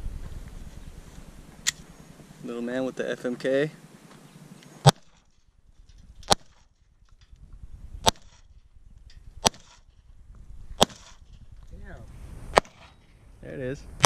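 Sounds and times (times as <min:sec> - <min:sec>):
pistol shots: 0:04.8 - 0:05.2, 0:08.0 - 0:08.4, 0:09.4 - 0:09.8, 0:10.8 - 0:11.2, 0:12.5 - 0:12.9.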